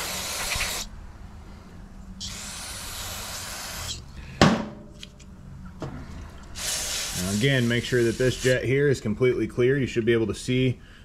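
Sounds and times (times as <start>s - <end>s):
aerosol spray hissing: 0.0s - 0.9s, 2.2s - 4.0s, 6.6s - 8.6s
sharp knock: 4.4s - 4.9s.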